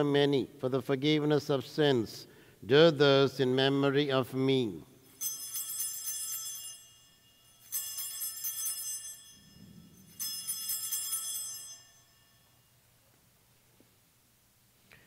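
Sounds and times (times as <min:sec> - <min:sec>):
small bells shaken together: 0:05.1 - 0:12.5.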